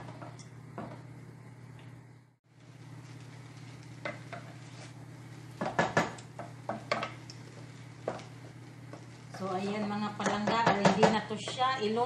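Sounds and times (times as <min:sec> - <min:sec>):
steady low hum: 0:00.0 - 0:12.0
wooden spatula scraping a pot: 0:03.0 - 0:05.8.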